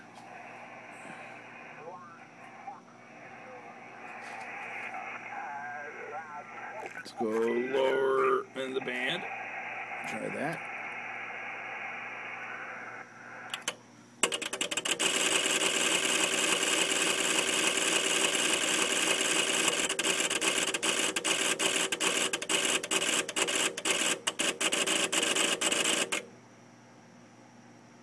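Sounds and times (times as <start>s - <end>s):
single relay clicks: 13.5s - 14.8s
relays chattering rapidly: 13.5s - 26.2s.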